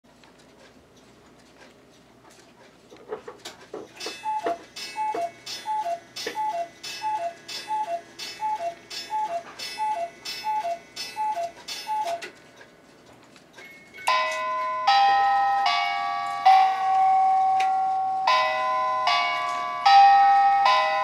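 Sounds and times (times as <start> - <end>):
cuckoo clock calls: 4.0 - 12.3
bell-like chiming tune: 13.7 - 21.0.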